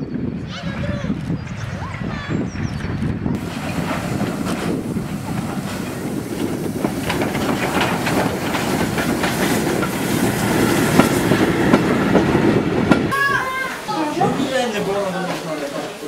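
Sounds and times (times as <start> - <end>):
train coaches passing: 0.0 - 16.0
wheels knocking over rail joints: 3.4 - 13.2.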